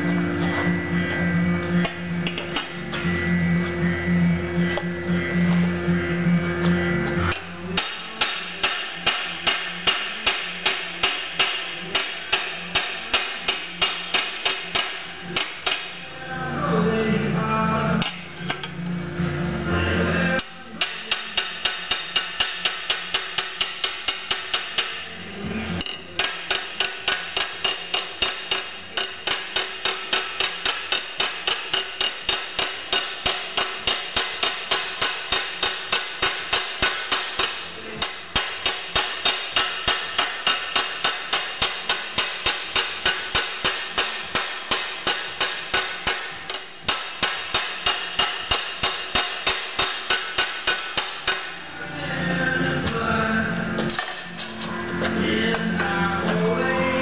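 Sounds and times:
hammer striking sheet metal: 7.3s - 16.0s, 20.8s - 25.1s, 25.8s - 51.6s.

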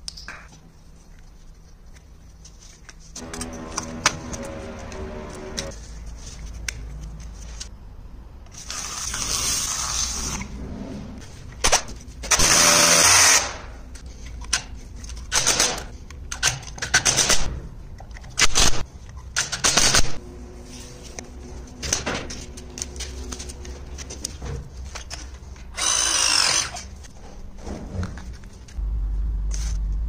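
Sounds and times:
drill-driver driving screws: 25.8s - 26.9s.

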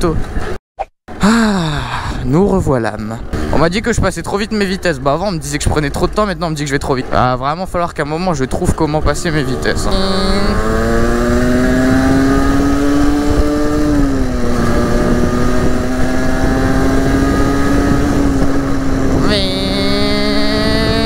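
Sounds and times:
motorcycle engine buzzing: 3.2s - 6.2s, 9.0s - 21.0s.

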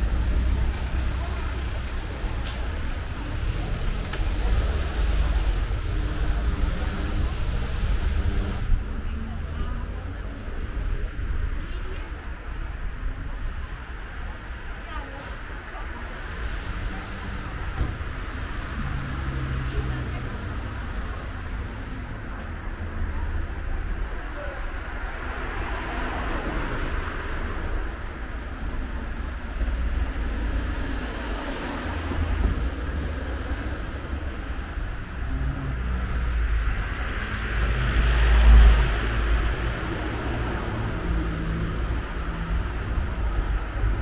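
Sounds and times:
cars driving past: 16.1s - 44.0s.

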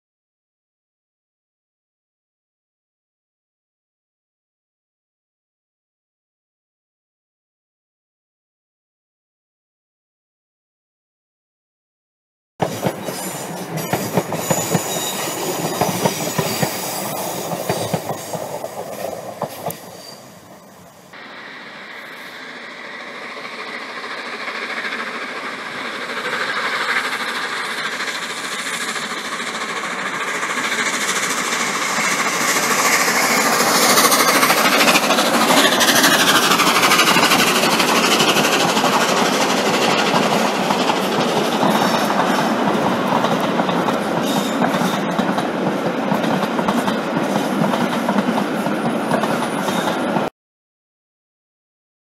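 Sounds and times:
steam locomotive passing: 12.6s - 50.3s
wheels clicking over rail joints: 24.9s - 50.3s.

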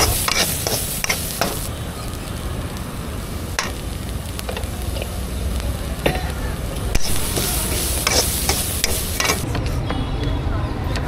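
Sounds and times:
spoon scraping metal pot: 0.0s - 1.7s, 6.9s - 9.5s
steady hiss: 0.0s - 9.6s.

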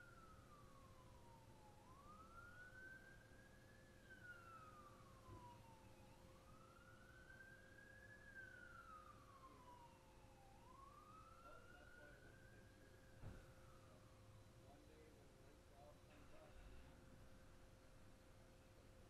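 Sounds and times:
faint wailing siren: 0.0s - 19.0s.

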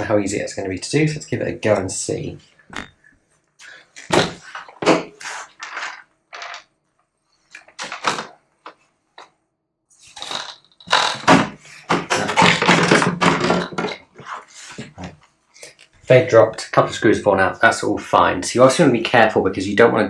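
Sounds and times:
plastic clattering and scraping: 4.0s - 6.7s, 7.6s - 9.3s, 10.1s - 15.1s
screws dropping: 5.6s - 6.7s.

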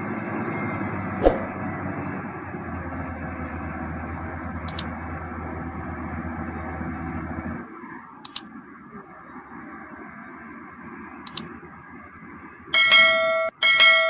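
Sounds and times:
diesel engine running under load: 0.0s - 7.7s
quick double clicks: 4.7s - 4.9s, 8.2s - 8.4s.

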